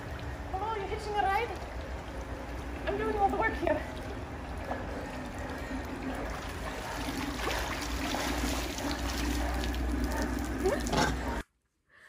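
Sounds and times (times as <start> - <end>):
pool water sloshing and trickling: 0.0 - 11.4.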